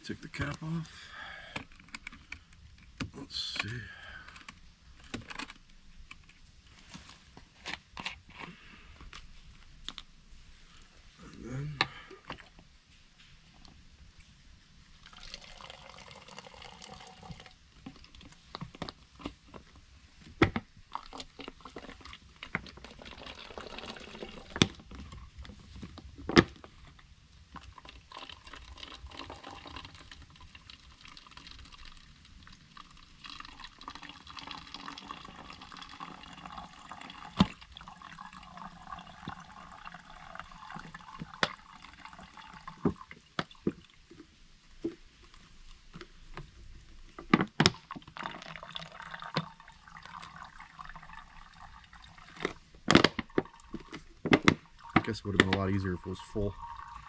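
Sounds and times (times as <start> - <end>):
water trickling: 14.9 - 18.1, 20.9 - 25.2, 27.6 - 44.2, 47.7 - 57.0.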